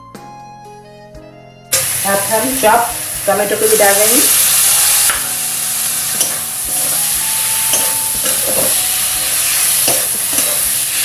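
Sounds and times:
tomatoes sizzling in hot oil: 0:01.7 - 0:11.0
metal spatula scraping a pan: 0:03.6 - 0:11.0.

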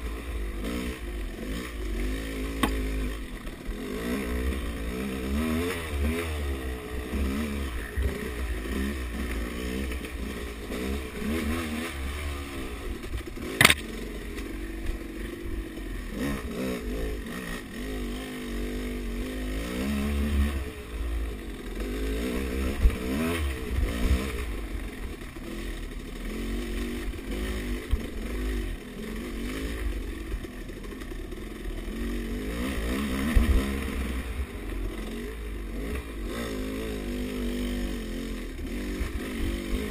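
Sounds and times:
dirt bike engine revving: 0:00.0 - 0:39.9
sharp knock: 0:02.6 - 0:02.8, 0:13.6 - 0:13.9.

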